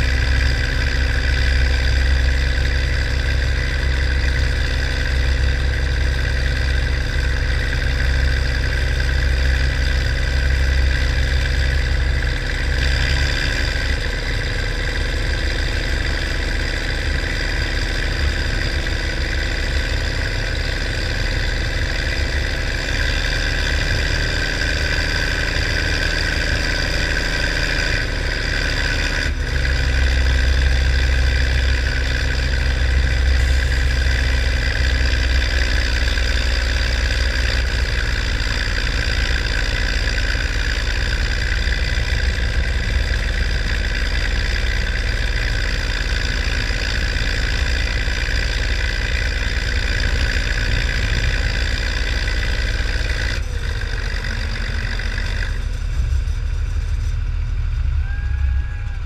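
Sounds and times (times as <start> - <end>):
tractor engine running under load: 0.0 - 59.0.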